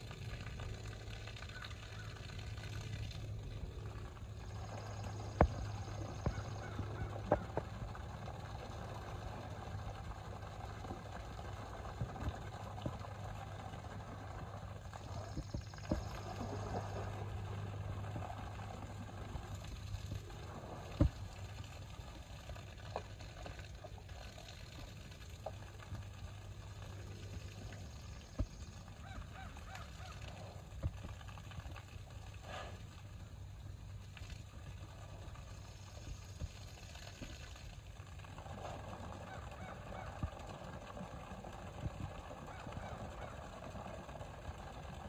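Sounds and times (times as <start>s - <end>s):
small waterfall pouring: 0.0s - 45.0s
water splashes and knocks: 20.9s - 21.4s.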